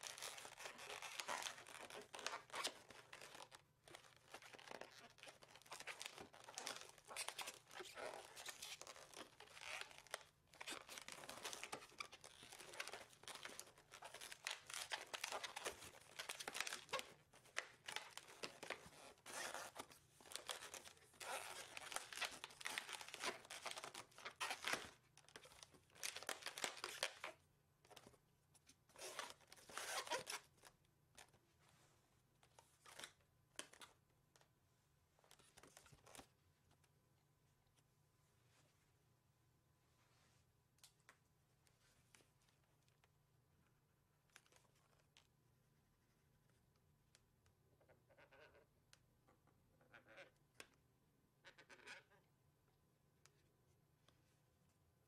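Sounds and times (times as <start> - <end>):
rubber balloon rubbing and crinkling: 0.0 - 24.9.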